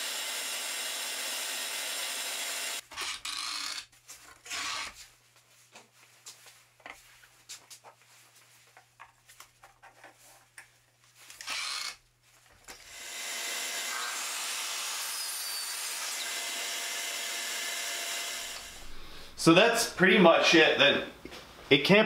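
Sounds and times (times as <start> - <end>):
saw motor running: 0.0 - 3.8, 11.4 - 12.0, 12.9 - 18.8.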